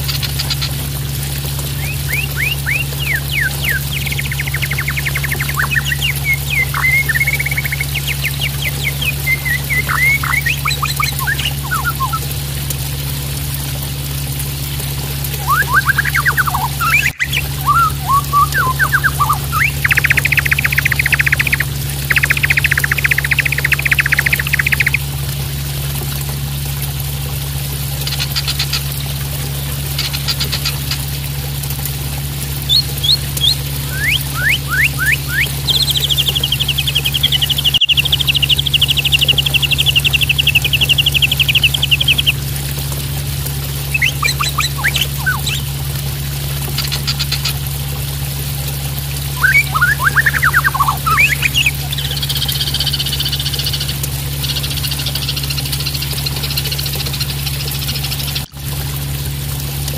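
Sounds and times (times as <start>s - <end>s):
constant low hum: 0.0s - 59.9s
running water splashing: 0.0s - 59.9s
bird singing: 1.7s - 12.2s, 15.4s - 25.0s, 32.6s - 42.4s, 43.9s - 45.7s, 49.3s - 57.4s.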